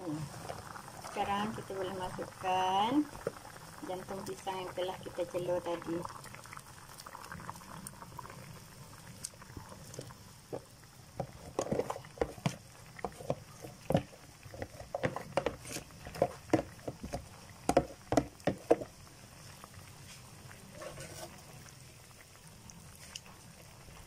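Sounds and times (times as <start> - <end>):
spatula stirring thick curry: 11.2 - 18.9, 20.1 - 21.6.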